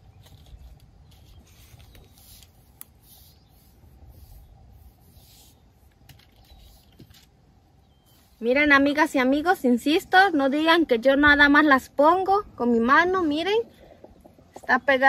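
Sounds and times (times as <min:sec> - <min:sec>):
scratchy rubbing strokes: 0:00.2 - 0:07.3.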